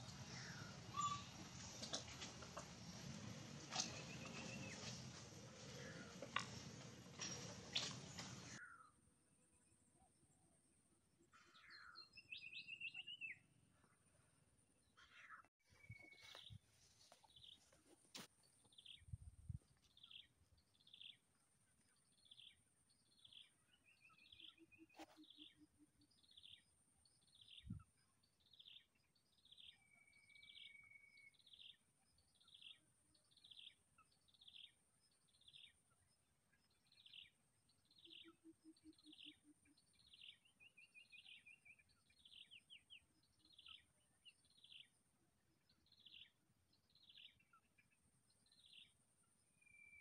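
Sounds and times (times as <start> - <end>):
bird chirping: 0.0 - 2.4, 3.6 - 8.9, 11.4 - 13.4, 18.5 - 45.0, 45.6 - 50.0.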